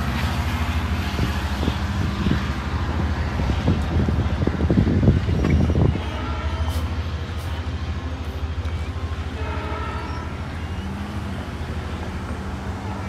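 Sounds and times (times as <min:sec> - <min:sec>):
wind buffeting the microphone: 0:00.0 - 0:07.4
diesel train engine droning: 0:00.0 - 0:13.0.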